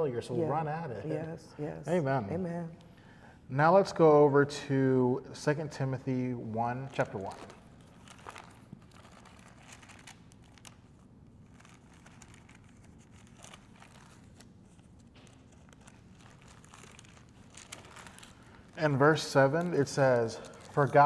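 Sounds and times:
low room hum: 0.0 - 21.0
pages rustling: 6.8 - 21.0.

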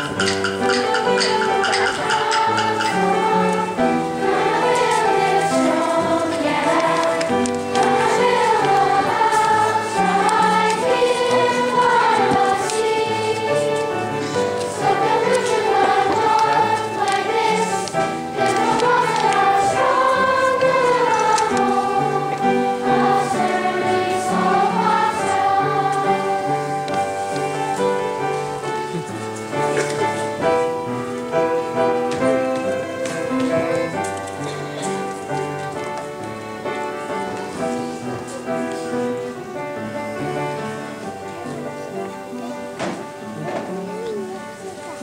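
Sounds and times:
choir singing in unison: 0.0 - 29.0
instrumental accompaniment: 0.0 - 45.0.

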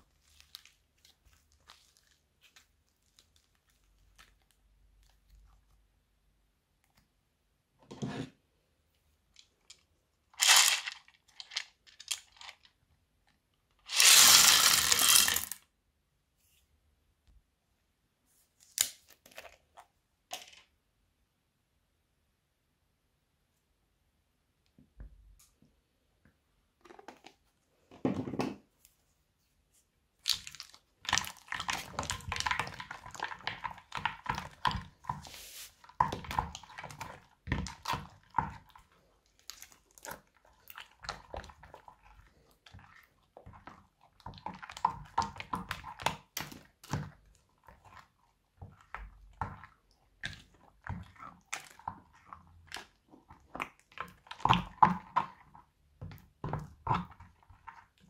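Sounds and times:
crunchy slime crackling and squelching: 0.0 - 5.8, 30.2 - 58.0.

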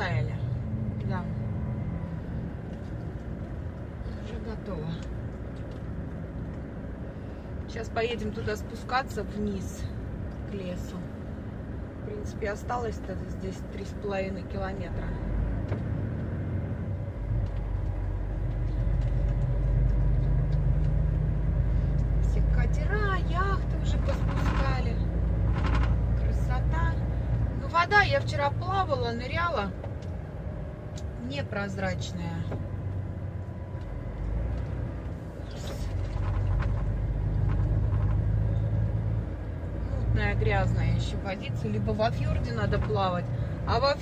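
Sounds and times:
truck diesel engine rumbling: 0.0 - 44.0.

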